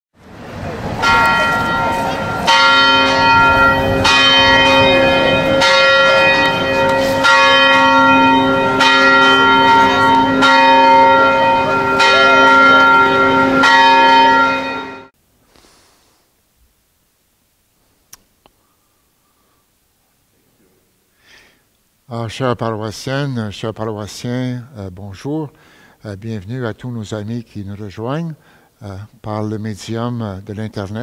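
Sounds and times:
church bells ringing: 0.5 - 15.2.

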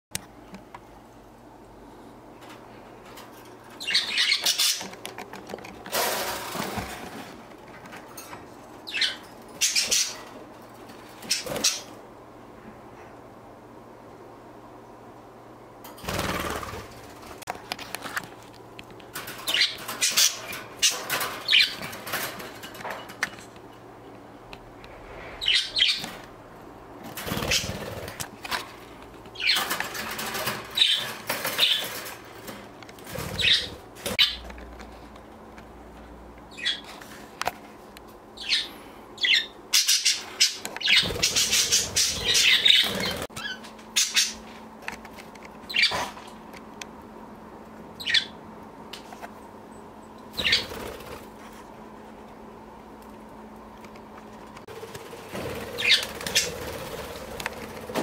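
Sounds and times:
budgerigar wings fluttering: 27.1 - 28.3, 50.4 - 51.4, 54.7 - 58.0
budgerigars chirping: 38.4 - 44.4.

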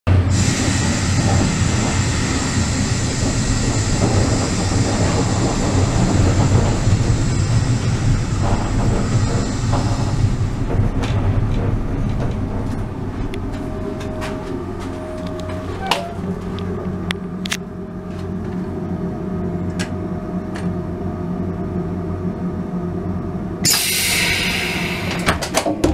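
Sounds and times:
train coach rumbling on rails: 0.1 - 25.9
high hiss: 23.6 - 25.3.

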